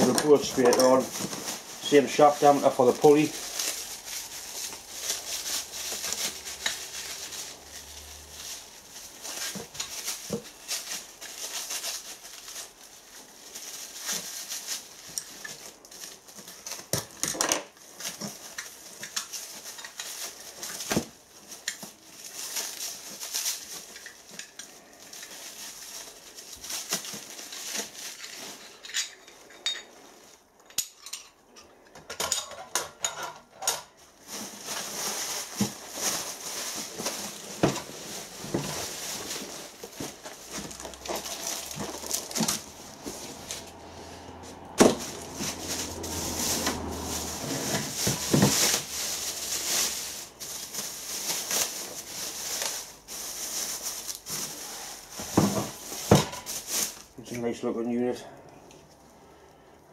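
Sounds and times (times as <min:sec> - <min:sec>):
plastic wrapping crinkling: 0:00.0 - 0:30.8, 0:33.6 - 0:59.9.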